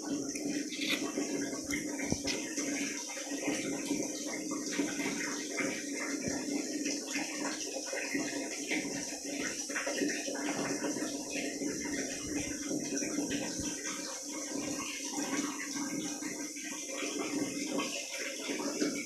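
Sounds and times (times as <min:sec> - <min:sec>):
otter chewing crackly pellets: 0:00.0 - 0:04.4
rushing like running water: 0:00.0 - 0:19.0.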